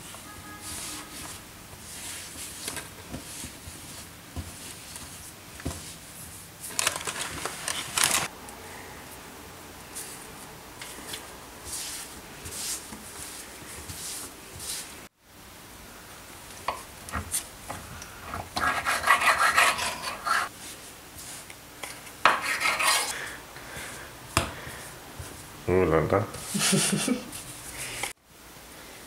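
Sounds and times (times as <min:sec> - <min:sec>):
hands kneading dough on countertop: 0:00.0 - 0:08.2, 0:09.9 - 0:15.1, 0:16.4 - 0:25.6.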